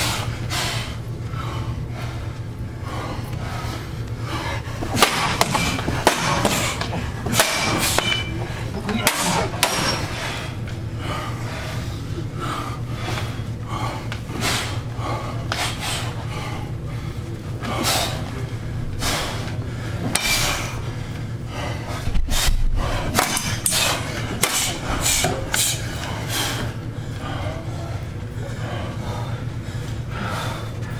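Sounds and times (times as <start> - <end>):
machetes striking shields: 4.9 - 8.3, 23.2 - 23.8.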